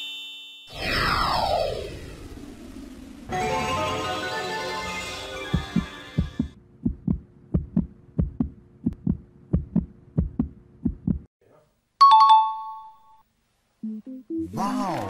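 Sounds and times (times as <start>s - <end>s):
heartbeat thumps: 5.5s - 11.3s.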